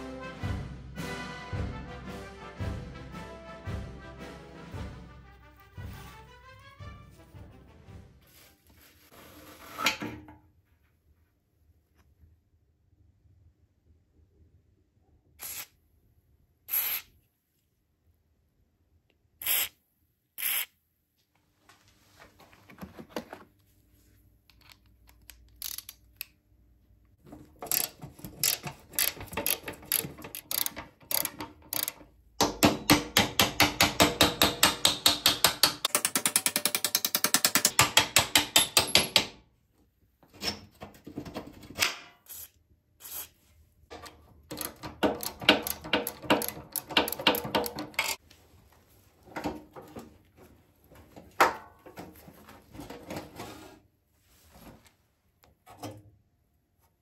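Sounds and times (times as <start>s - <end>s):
ratchet wrench clicking: 20.4s - 20.7s, 25.3s - 26.0s, 27.7s - 32.0s.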